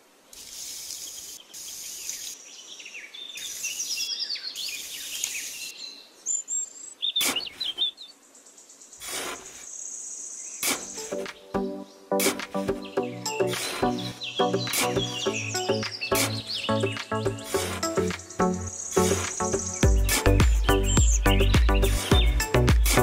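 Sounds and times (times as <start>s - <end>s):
birds chirping: 0.4s - 23.0s
stick and trowel scraping sand: 7.2s - 7.8s, 9.0s - 9.7s, 10.6s - 11.4s, 12.2s - 21.8s.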